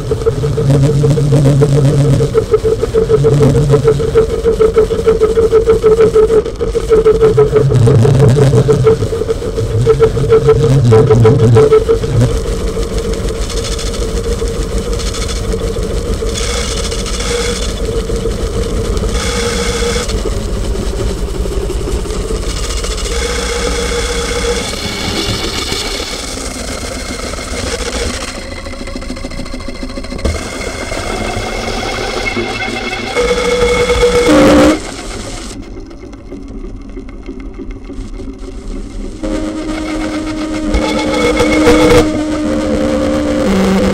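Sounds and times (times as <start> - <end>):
noise instrument drone: 0.0 - 43.9.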